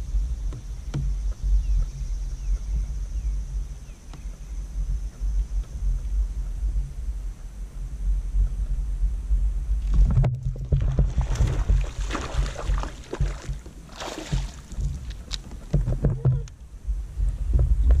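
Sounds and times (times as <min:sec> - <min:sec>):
steady low rumble: 0:00.0 - 0:18.0
water splashing against kayak: 0:09.8 - 0:16.7.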